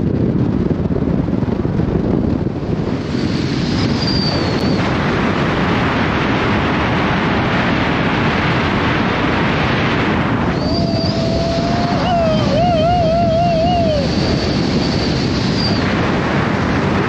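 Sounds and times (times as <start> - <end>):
wind blowing across microphone: 0.0 - 17.0
wavering whistle-like tone: 10.5 - 14.2.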